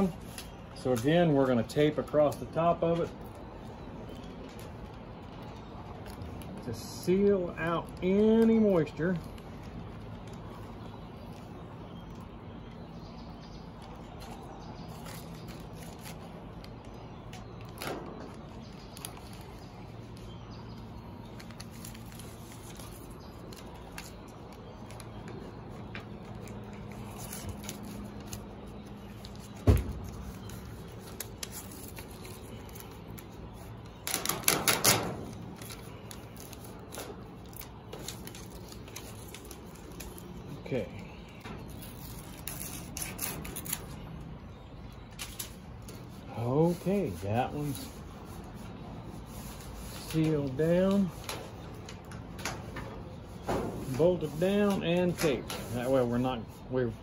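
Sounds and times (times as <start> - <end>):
small clicks on metal roof panel: 34.0 - 35.7.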